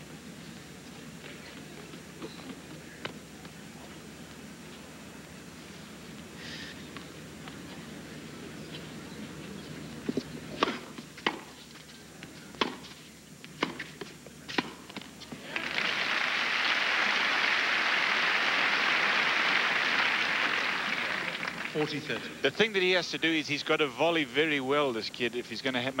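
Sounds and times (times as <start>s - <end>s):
crowd applause: 15.4s - 22.2s.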